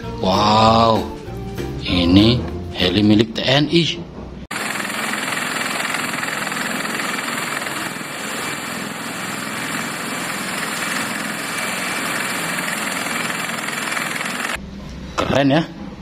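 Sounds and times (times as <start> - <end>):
helicopter turbine and rotor noise: 4.5 - 14.6.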